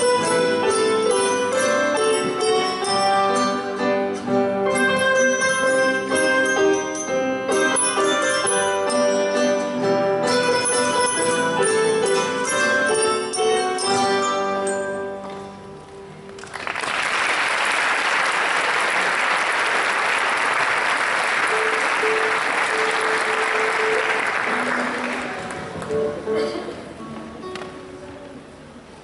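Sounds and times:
metallophones and keyboards playing: 0.0s - 15.9s, 21.4s - 26.6s
audience applause: 16.4s - 25.8s.

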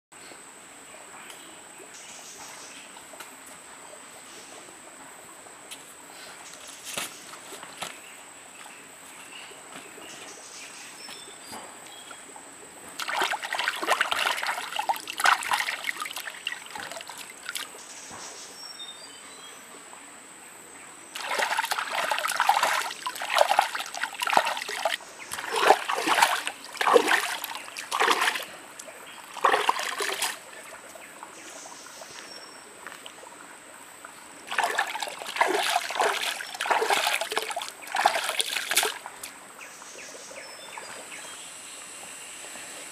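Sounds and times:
stream trickling: 1.8s - 20.1s, 21.0s - 42.9s
hands splashing in water: 13.0s - 17.7s, 21.2s - 30.6s, 34.5s - 39.3s.

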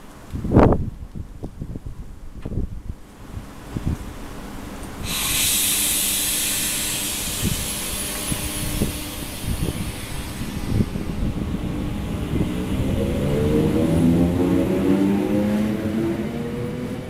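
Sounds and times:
train humming: 3.0s - 17.0s
air brakes hissing: 5.0s - 12.2s.

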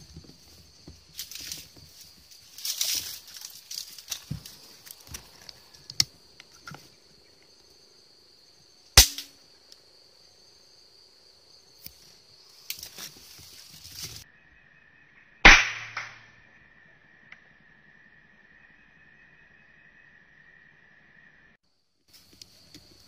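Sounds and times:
air rifle shots: 9.0s - 9.3s, 15.5s - 16.2s.

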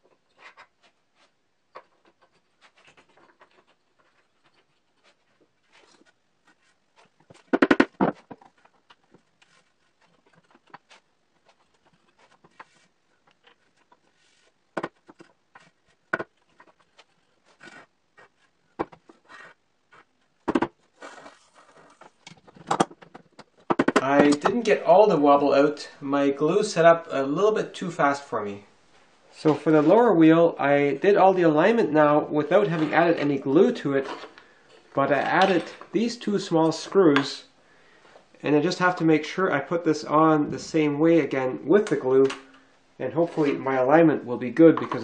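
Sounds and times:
wooden parts knocking: 7.4s - 9.2s, 20.4s - 20.8s, 22.1s - 24.6s.

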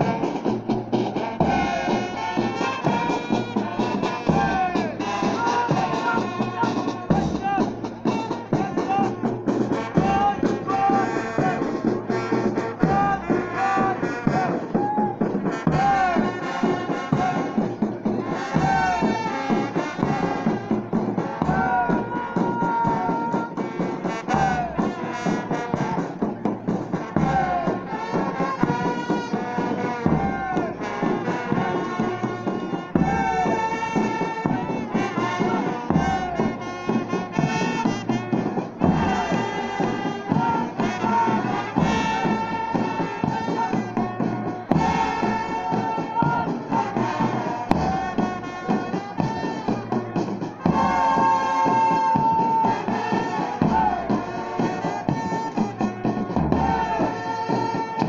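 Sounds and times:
bass drum beat: 0.0s - 58.0s
marching band brass music: 0.0s - 58.0s.

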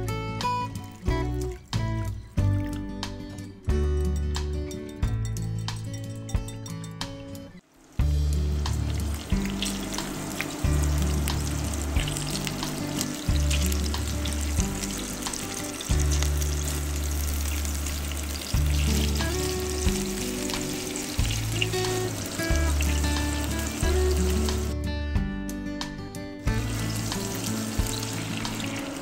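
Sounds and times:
background music: 0.0s - 29.0s
oil crackling and popping: 7.6s - 24.7s, 26.5s - 29.0s
patties sizzling in hot oil: 7.6s - 24.7s, 26.5s - 29.0s.

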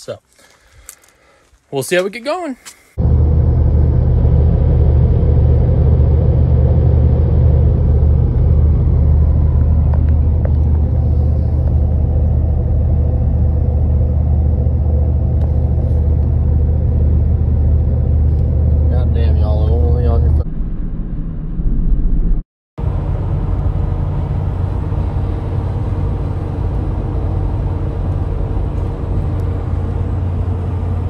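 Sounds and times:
road and engine drone in cabin: 2.9s - 31.0s.

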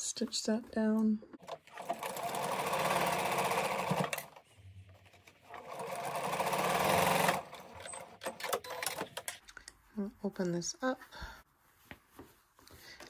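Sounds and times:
sewing machine stitching: 1.4s - 4.4s, 5.4s - 9.4s.

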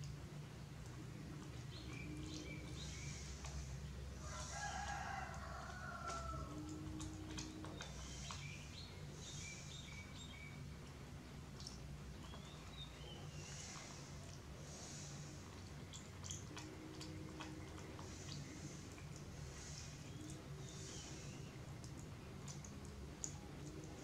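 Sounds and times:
steady low hum: 0.0s - 24.0s
small birds chirping: 0.6s - 24.0s
rooster crowing: 4.2s - 6.6s.

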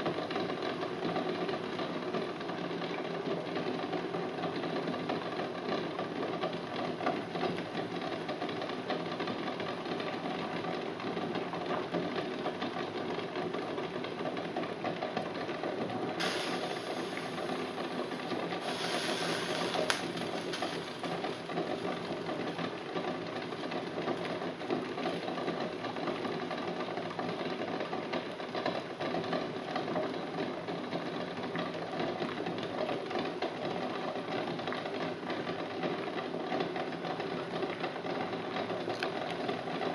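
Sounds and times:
eggs rattling in a saucepan: 14.8s - 26.7s
thin hiss: 16.2s - 17.6s, 18.6s - 20.8s.

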